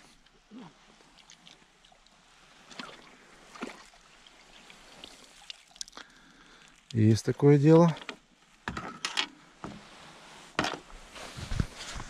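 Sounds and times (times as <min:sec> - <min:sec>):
water splashing and trickling: 0:00.0 - 0:08.8.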